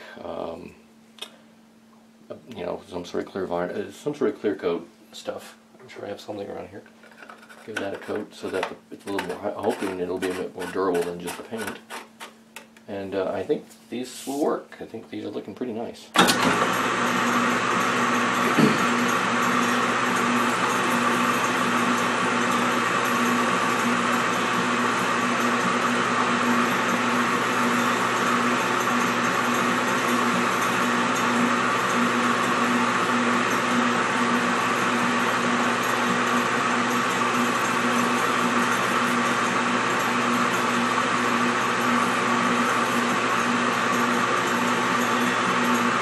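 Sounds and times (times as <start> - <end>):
small lathe whirring: 16.2 - 46.0.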